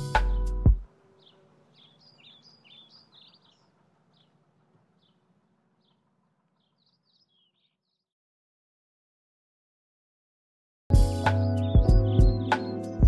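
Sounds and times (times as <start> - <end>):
bird chirps: 0.0 - 8.2, 11.2 - 13.0.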